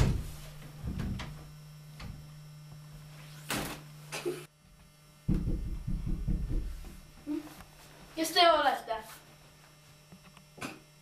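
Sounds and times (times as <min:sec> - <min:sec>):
wooden door knocks and thuds: 0:00.0 - 0:02.2, 0:05.3 - 0:07.0
steady low hum: 0:00.0 - 0:11.0.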